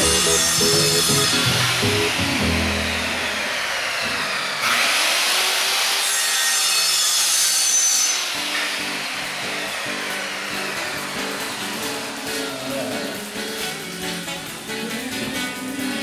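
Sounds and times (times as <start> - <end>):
saw cutting: 0.0 - 15.7.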